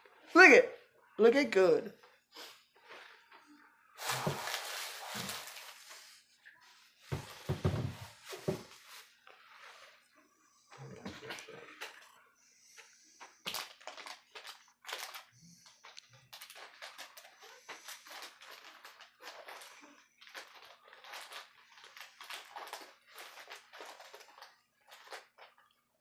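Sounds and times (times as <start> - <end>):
paper wrap rustling and crackling: 4.0 - 10.1, 13.2 - 25.8.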